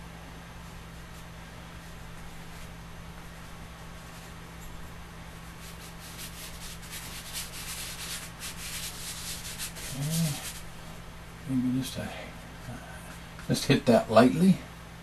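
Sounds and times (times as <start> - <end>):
chalk scratching on a surface: 5.4 - 10.7
man humming: 9.8 - 10.6.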